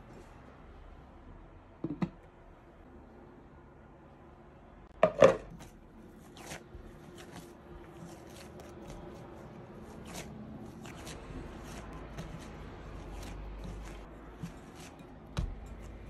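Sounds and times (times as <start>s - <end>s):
dough being kneaded: 5.0s - 16.0s.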